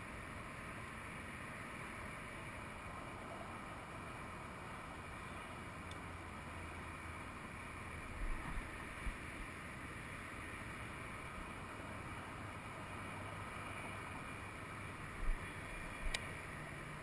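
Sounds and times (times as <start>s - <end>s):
faint outdoor rumble and hiss: 0.0s - 17.0s.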